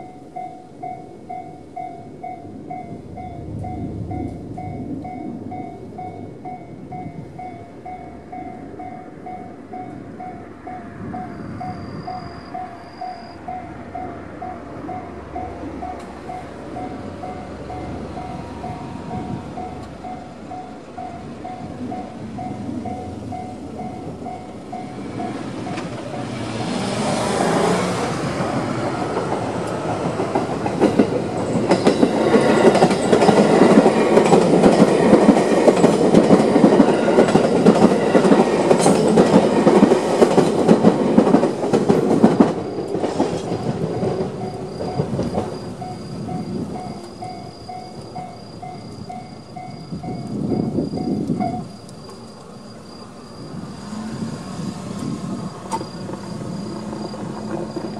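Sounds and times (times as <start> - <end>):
level crossing alarm dinging: 0.0 - 28.1, 42.2 - 52.2
train wheels clacking over rails: 0.0 - 52.5, 53.4 - 57.9.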